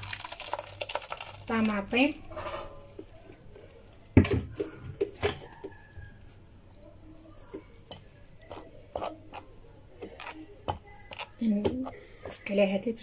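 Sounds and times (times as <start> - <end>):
spatula working puree through sieve: 7.4 - 12.6.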